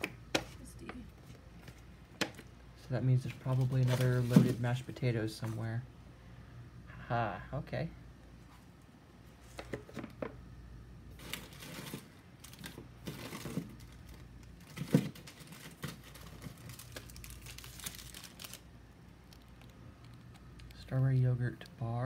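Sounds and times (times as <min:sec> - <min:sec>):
plastic wrappers rustling and crinkling: 0:03.2 - 0:05.7, 0:11.1 - 0:20.8.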